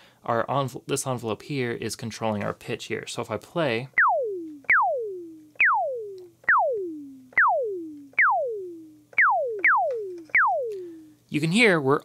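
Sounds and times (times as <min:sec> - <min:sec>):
synth notes diving in pitch: 0:03.9 - 0:11.2.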